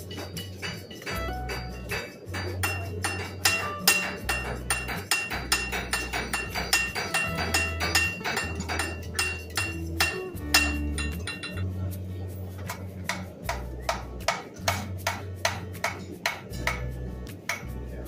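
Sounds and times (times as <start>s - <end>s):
background music with bass line: 0.0s - 18.0s
hammer ringing on anvil: 0.1s - 11.6s.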